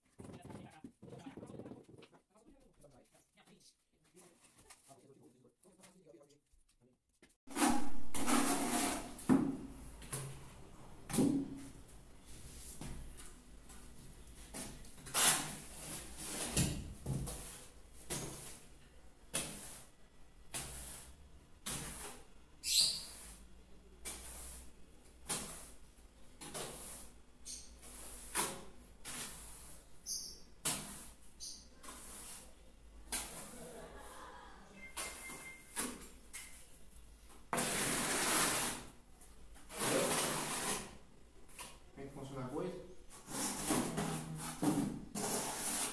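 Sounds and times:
tiles and boxes scraping on concrete: 7.5s - 9.3s, 37.6s - 39.0s, 39.6s - 41.0s, 43.2s - 45.9s.

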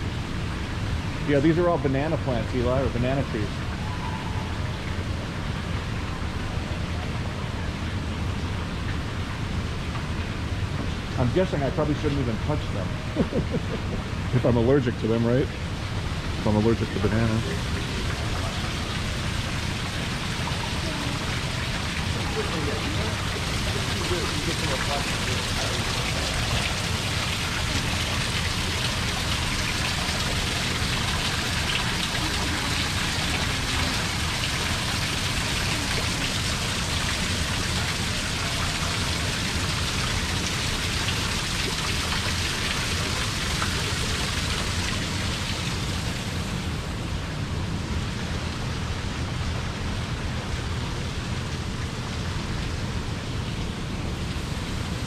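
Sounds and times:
low steady rumble: 0.0s - 55.0s
waterfall splashing: 7.5s - 47.2s.

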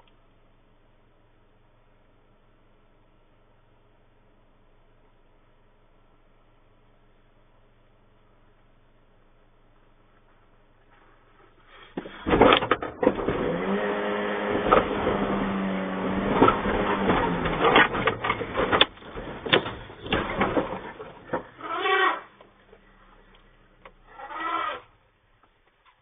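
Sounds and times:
sheet metal crunching and buckling: 14.6s - 22.4s
metal creaking under load: 16.5s - 22.4s, 24.0s - 24.9s.

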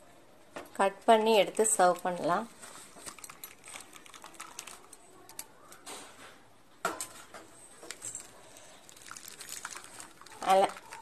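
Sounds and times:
liquid pouring into steel tray: 8.6s - 11.0s.

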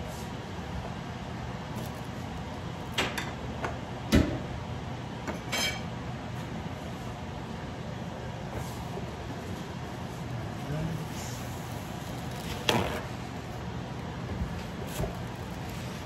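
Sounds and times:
tableware clinking: 5.3s - 5.9s.

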